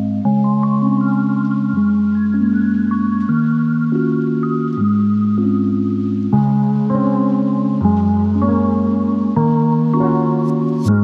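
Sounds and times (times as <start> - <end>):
ambient keyboard chords: 0.0 - 11.0.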